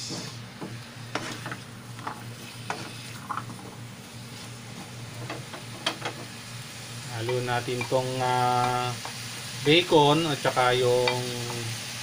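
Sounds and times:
light sizzle: 0.0 - 12.0
spatula scraping pan: 1.1 - 3.6.

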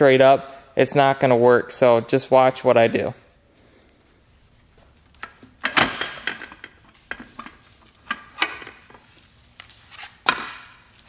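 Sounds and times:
metal clanking and scraping: 5.2 - 9.1.

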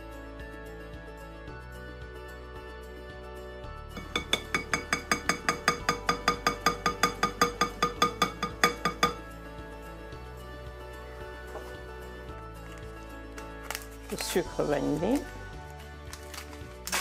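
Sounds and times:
soft background music: 0.0 - 17.0
sieve clinking against glass bowl: 4.0 - 9.3.

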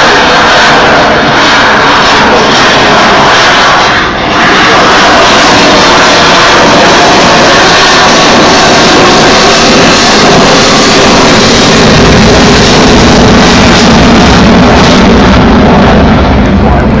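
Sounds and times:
fighter jet roar: 0.0 - 17.0.

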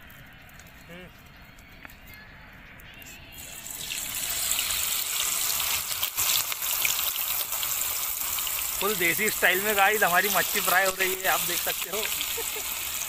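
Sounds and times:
fish sizzling in hot oil: 3.4 - 13.0.

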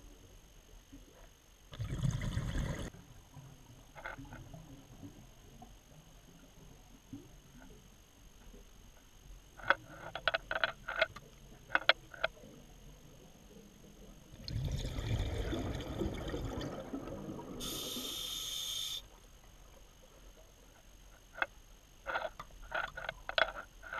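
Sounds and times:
regulator exhaled bubbles: 1.7 - 2.9, 14.4 - 18.4
regulator inhalation hiss: 17.6 - 19.1.

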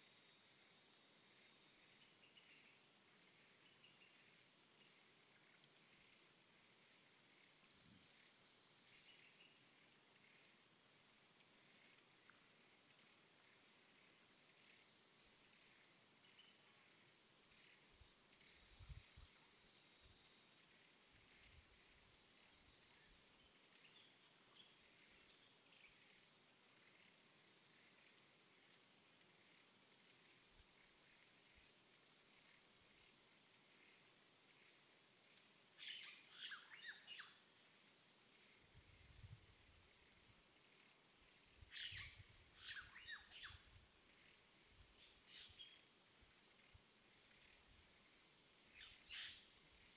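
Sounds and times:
high-pitched insect drone: 40.6 - 44.4.

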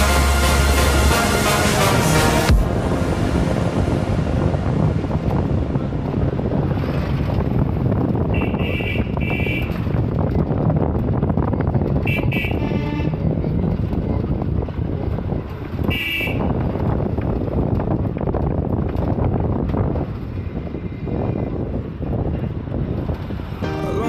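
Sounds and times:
bus engine and road rumble: 0.0 - 24.0
wind on microphone: 2.5 - 23.7
vehicle horn beeps: 8.3 - 9.8, 12.1 - 13.2, 15.9 - 16.5.

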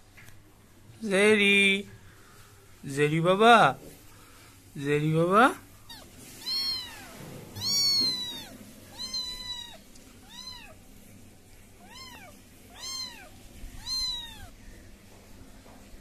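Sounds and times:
kitten meowing: 5.8 - 10.8, 11.8 - 14.6.

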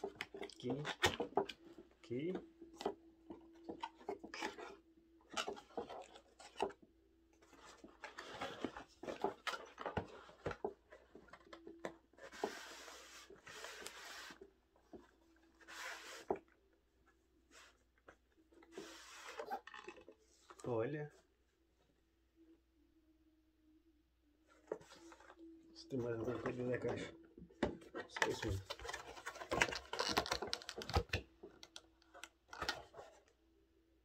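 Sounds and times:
cardboard sliding scrapes: 12.2 - 14.4, 15.6 - 16.4.

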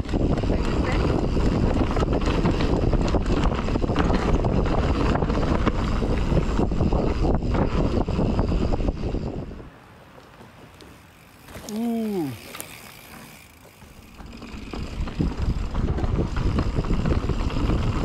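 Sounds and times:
wind buffeting microphone: 0.0 - 9.8, 11.2 - 18.0
bike clicks and rattles: 0.0 - 18.0
bike rolling over dirt trail: 0.0 - 18.0.

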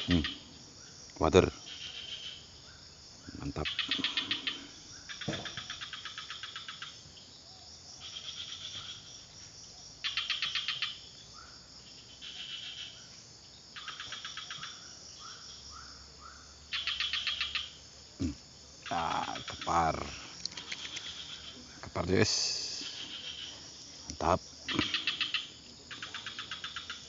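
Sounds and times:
insect pulsing trills: 0.0 - 27.0
short insect chirps: 0.0 - 27.0
brief thump: 5.3 - 5.6.

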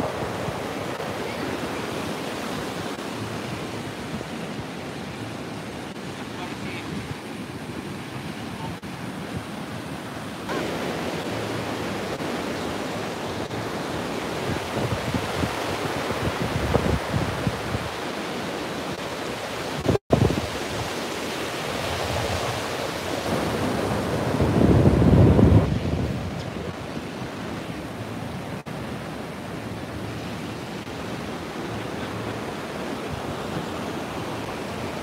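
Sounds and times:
surf breaking on sandy beach: 10.4 - 18.0, 19.0 - 27.6
wind rushing over microphone: 13.0 - 18.1, 19.7 - 35.0.

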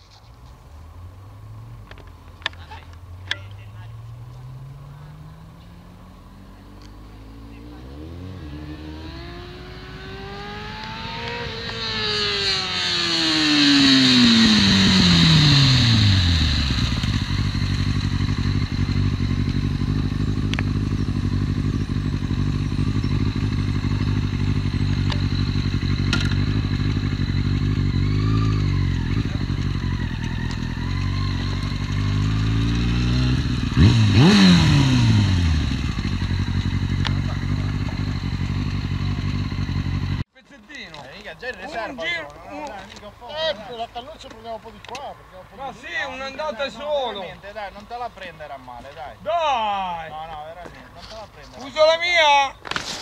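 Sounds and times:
motorcycle engine revving and idling: 1.0 - 40.3.

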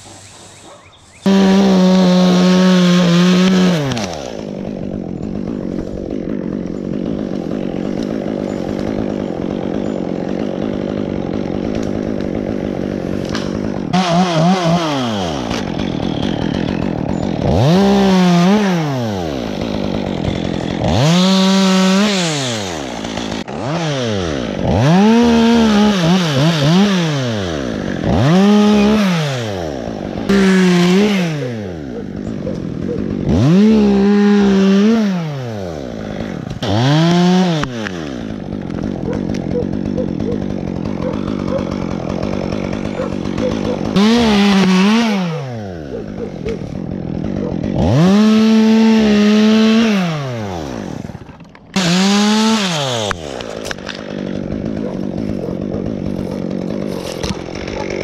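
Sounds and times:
chainsaw revving and idling: 0.0 - 58.0.

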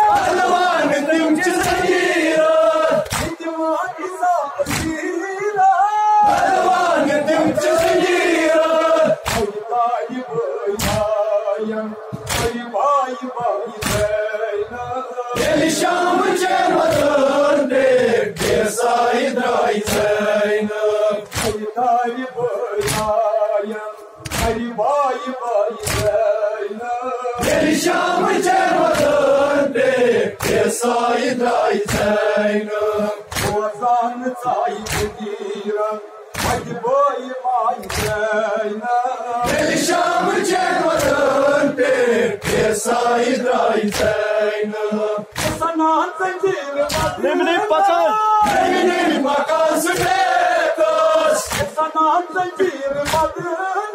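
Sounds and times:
men chanting in unison: 0.0 - 53.9
chest-beating slaps: 1.6 - 2.0, 3.0 - 3.4, 4.7 - 5.0, 9.2 - 9.5, 10.8 - 11.2, 12.2 - 12.6, 13.8 - 14.2, 21.2 - 21.6, 22.8 - 23.2, 24.2 - 24.6, 25.8 - 26.2, 30.4 - 30.7, 33.3 - 33.7, 34.8 - 35.2, 36.3 - 36.7, 37.8 - 38.3, 40.9 - 41.3, 42.4 - 42.8, 43.8 - 44.3, 45.3 - 45.7, 46.9 - 47.2, 51.4 - 51.8, 53.0 - 53.4.

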